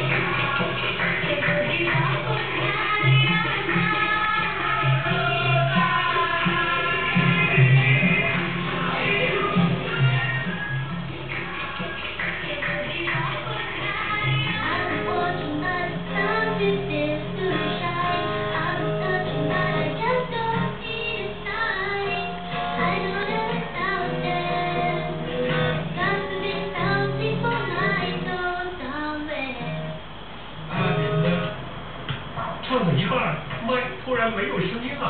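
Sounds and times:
high singing voice: 0.0 - 30.0.

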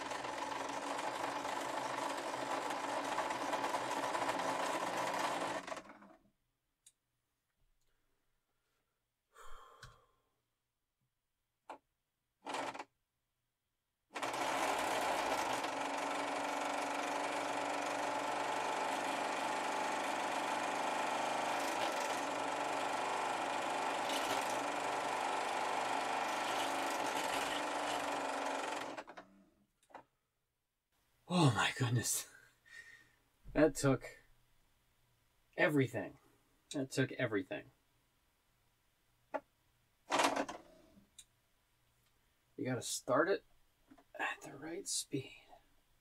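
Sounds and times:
drill motor spinning: 0.0 - 6.2, 12.4 - 12.9, 14.1 - 29.2.

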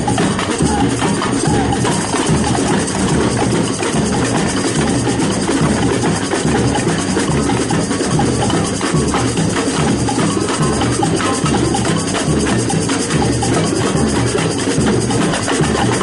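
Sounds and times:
samba music with percussion: 0.0 - 16.0.

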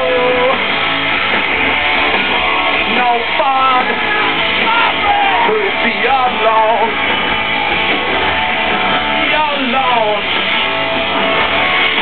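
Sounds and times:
person singing: 0.0 - 0.6, 2.8 - 7.0
electric guitar: 0.0 - 12.0
live rock band playing: 0.0 - 12.0.

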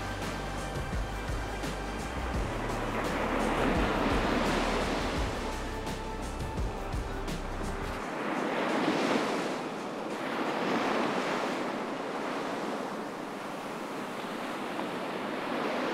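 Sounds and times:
wind on microphone: 0.0 - 15.9
small waves breaking on sand: 1.7 - 6.2, 7.9 - 15.9.

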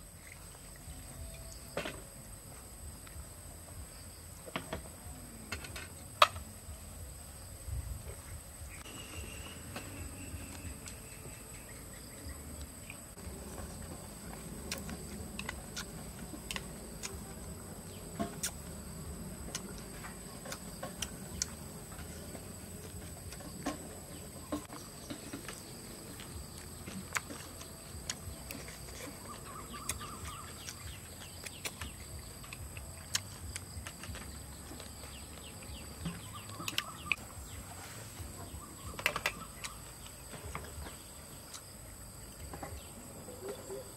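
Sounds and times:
insects chirring: 0.0 - 43.9
chewing: 9.5 - 37.3.

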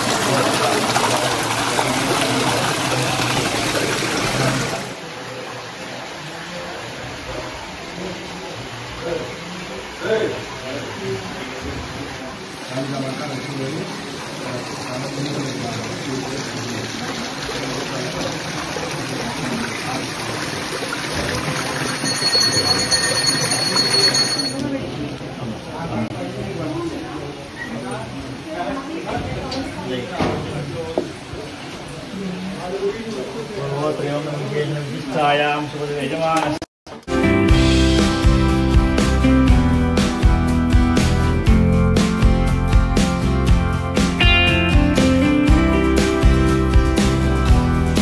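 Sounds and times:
murmur of voices: 0.0 - 23.0, 23.6 - 36.6
water running: 0.0 - 24.7.

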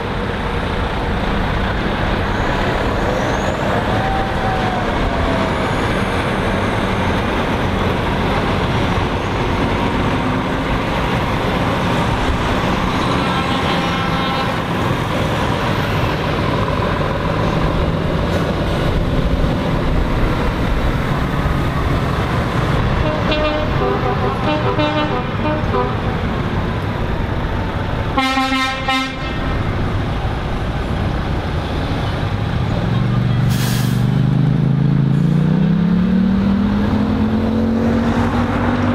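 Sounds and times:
trucks driving past: 0.0 - 38.9
truck air horn blasts: 13.1 - 14.7, 23.0 - 26.2, 28.2 - 29.5.

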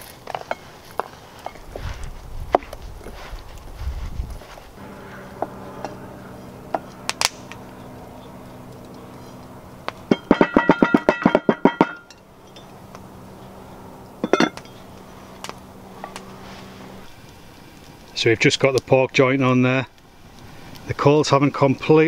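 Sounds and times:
cast iron pot rattling: 8.8 - 16.4
cast iron lid clink: 10.1 - 12.7, 14.2 - 14.8.

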